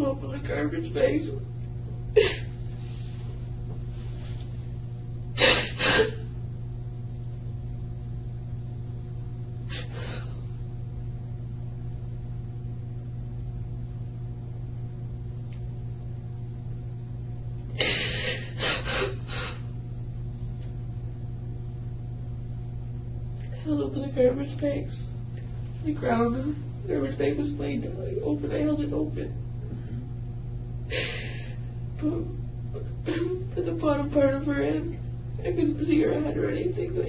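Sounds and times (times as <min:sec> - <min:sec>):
low room hum: 0:00.0 - 0:37.0.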